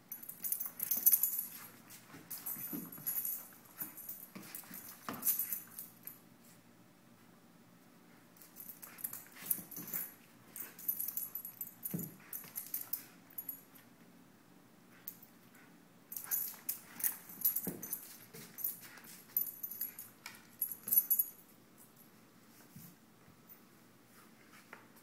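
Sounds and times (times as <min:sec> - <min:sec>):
collar tags jingling: 0:00.1 - 0:06.2, 0:08.4 - 0:13.6, 0:16.1 - 0:21.5.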